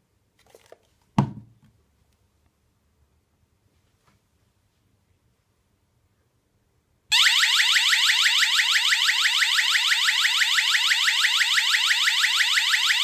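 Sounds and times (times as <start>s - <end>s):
electronic alarm siren whooping: 7.1s - 13.0s.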